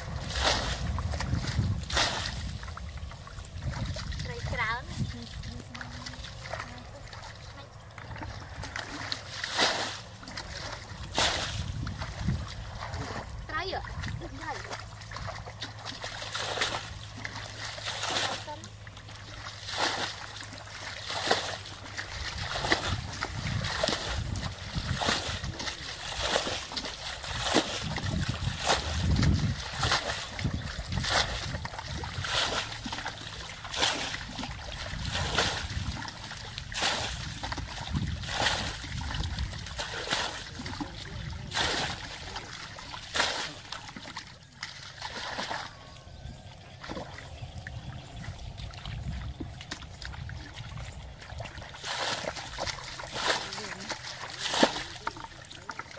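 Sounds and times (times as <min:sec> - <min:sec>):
stream water splashing: 0:00.0 - 0:55.9
water churning slosh: 0:00.0 - 0:55.9.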